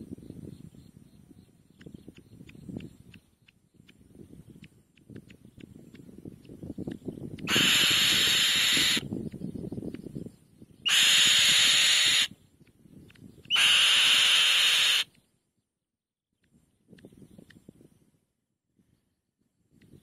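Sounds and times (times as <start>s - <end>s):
bird giving harsh screechy calls: 7.5s - 9.1s, 10.8s - 12.3s, 13.5s - 15.1s.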